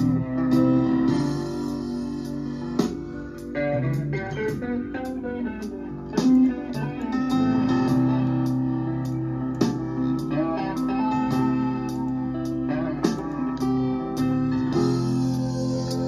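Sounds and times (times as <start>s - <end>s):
plucked guitar music: 0.0s - 16.0s.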